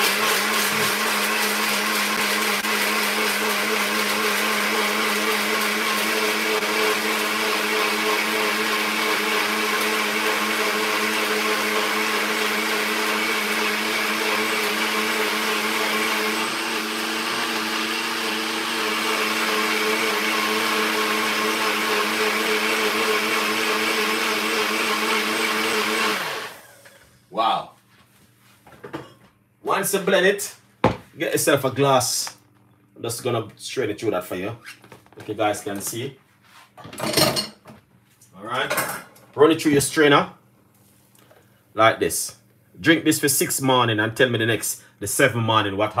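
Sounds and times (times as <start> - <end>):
electric blender running: 0.0 - 27.1.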